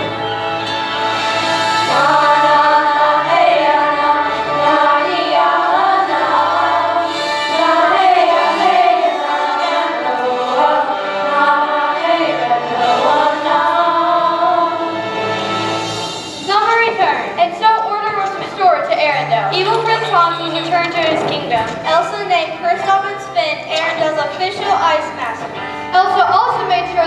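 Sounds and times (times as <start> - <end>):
choir singing long notes: 0.0 - 16.2
instrumental accompaniment: 0.0 - 27.0.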